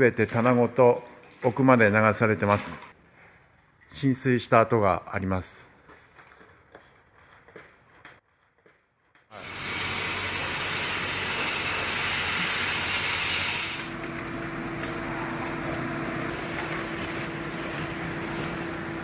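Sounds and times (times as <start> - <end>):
excavator engine running: 9.4 - 19.0
hissing machine noise: 9.4 - 19.0.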